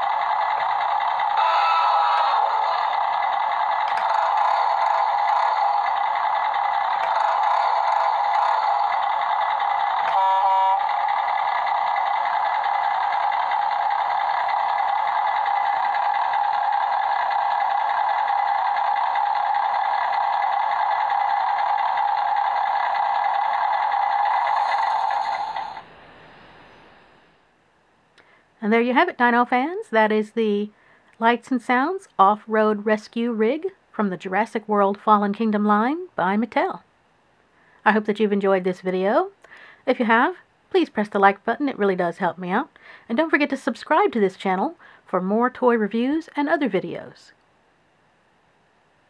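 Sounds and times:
toy truck engine sound effect: 0.0s - 27.2s.

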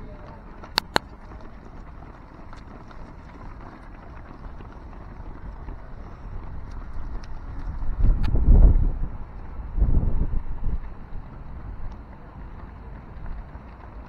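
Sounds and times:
runners' footsteps on asphalt: 0.0s - 14.0s
wind buffeting microphone: 0.0s - 14.0s
sharp cracks: 0.6s - 1.3s.

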